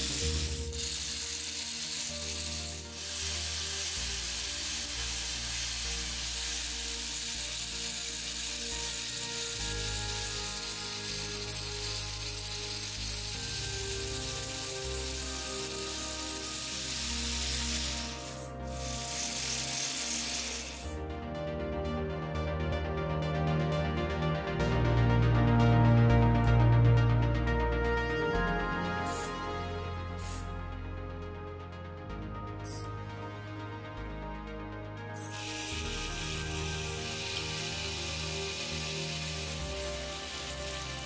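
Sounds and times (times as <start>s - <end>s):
sustained chords over deep bass: 17.1s - 41.0s.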